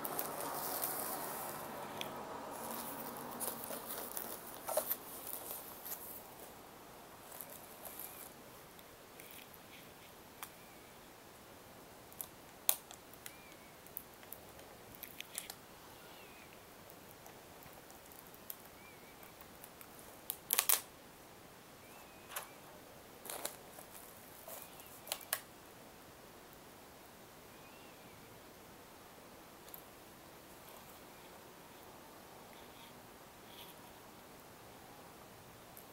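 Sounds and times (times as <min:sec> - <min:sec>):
tissue paper rustling: 0:00.0 - 0:06.6.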